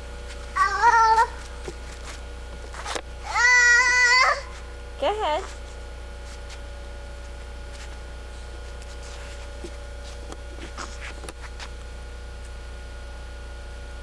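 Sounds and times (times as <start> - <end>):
camcorder hum and hiss: 0.0 - 14.0
faint rustles and clicks: 0.2 - 3.1, 4.5 - 12.6.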